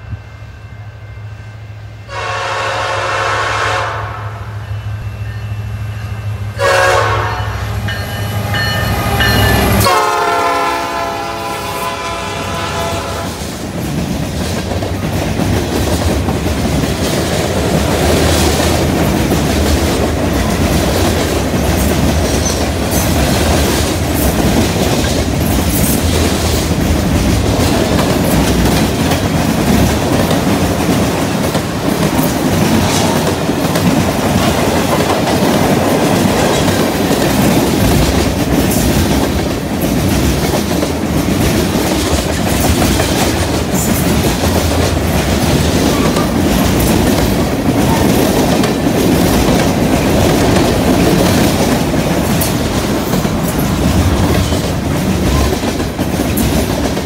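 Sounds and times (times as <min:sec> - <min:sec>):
locomotive engines rumbling: 0:00.9 - 0:57.0
train horn blasts: 0:02.0 - 0:13.4
train wheels clattering on rails: 0:07.8 - 0:57.0.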